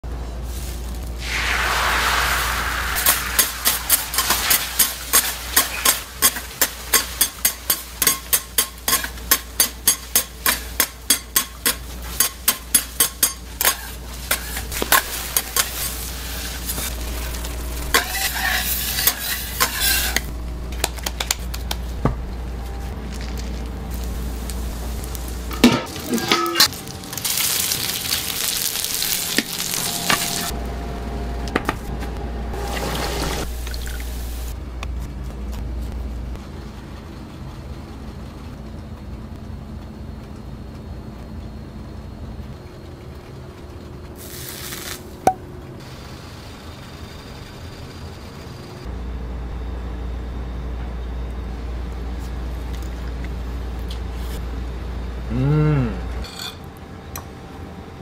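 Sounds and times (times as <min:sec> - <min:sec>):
patties frying in oil: 0:00.6 - 0:20.2, 0:23.1 - 0:30.6, 0:42.4 - 0:45.2
food sizzling: 0:01.1 - 0:20.3, 0:23.1 - 0:30.6, 0:32.6 - 0:34.6, 0:44.2 - 0:45.2
metal spatula scraping griddle: 0:03.0 - 0:17.0, 0:17.8 - 0:20.3.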